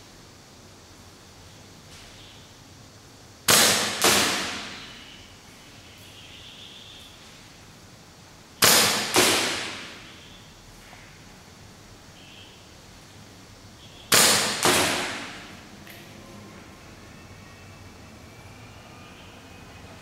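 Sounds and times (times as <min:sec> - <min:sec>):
airsoft rifle firing sharp cracks: 0:03.5 - 0:04.8, 0:08.6 - 0:10.0, 0:14.1 - 0:15.4.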